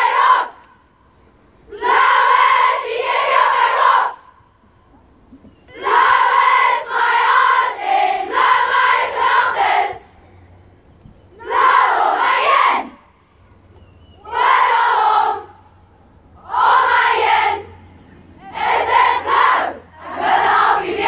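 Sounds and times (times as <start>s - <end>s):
girls chanting in unison: 5.7s - 10.2s, 18.4s - 21.0s.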